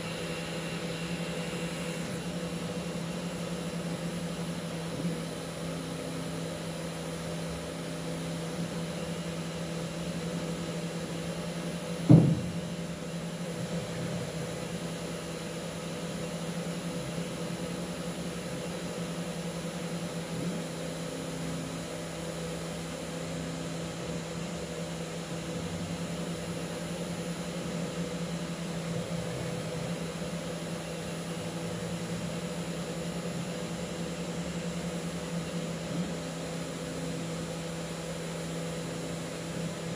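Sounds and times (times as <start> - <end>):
spindle motor humming: 0.0 - 39.9
sharp knock: 12.0 - 12.6.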